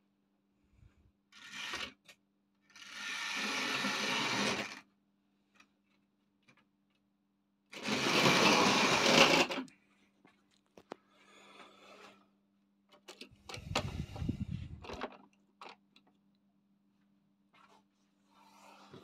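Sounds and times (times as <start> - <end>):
model locomotive motor whirring: 1.4 - 2.0, 2.7 - 4.8, 7.8 - 9.7.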